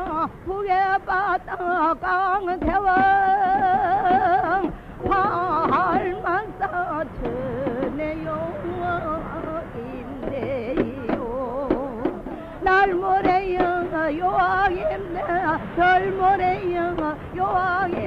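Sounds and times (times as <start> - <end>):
woman singing with vibrato: 0.0 - 18.0.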